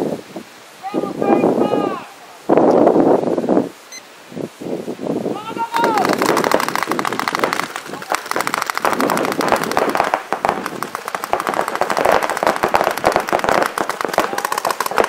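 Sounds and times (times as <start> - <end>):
voices shouting: 5.4 - 6.7
paintball markers firing rapidly: 5.8 - 15.0.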